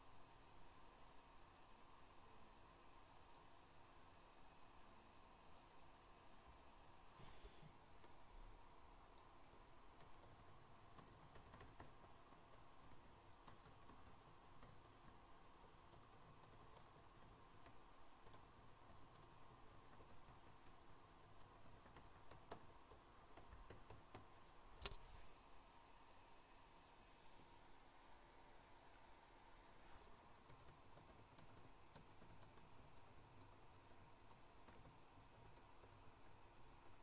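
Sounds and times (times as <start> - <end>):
computer keyboard clicks: 10.0 - 25.0, 30.4 - 37.0.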